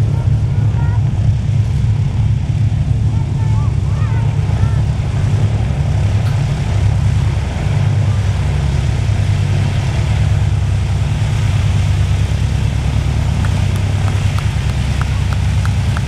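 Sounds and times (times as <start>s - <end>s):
aircraft engines droning: 0.0s - 16.0s.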